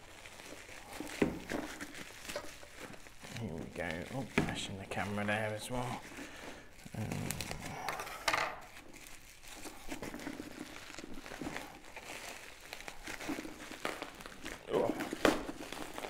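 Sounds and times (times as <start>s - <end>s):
bubble wrap and plastic crinkling: 0.0s - 16.0s.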